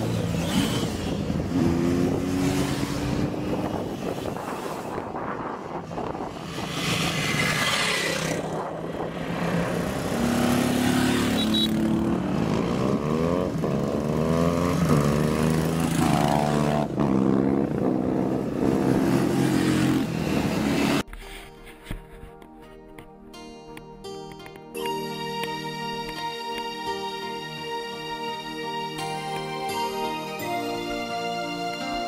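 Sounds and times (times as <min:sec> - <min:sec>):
motorcycle engine revving: 0:00.0 - 0:21.0
motorcycle passing: 0:00.0 - 0:21.0.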